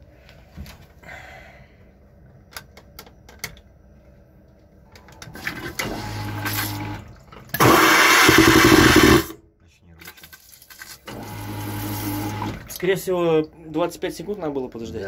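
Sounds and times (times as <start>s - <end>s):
toilet flush mechanism humming: 5.4s - 9.3s, 11.1s - 12.7s.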